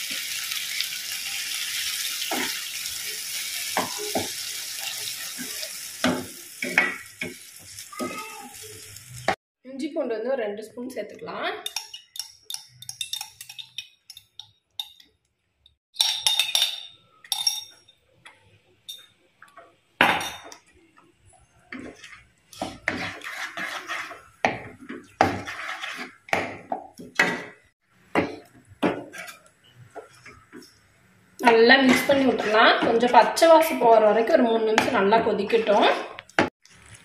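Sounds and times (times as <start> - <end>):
ladle scraping and clinking in pan: 21.7 - 26.5.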